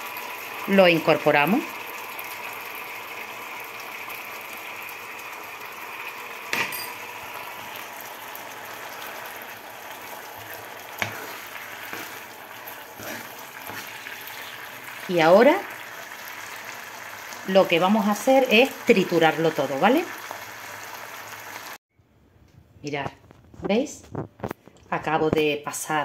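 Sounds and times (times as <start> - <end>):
sauce simmering and bubbling: 0.0 - 17.5, 20.1 - 21.8.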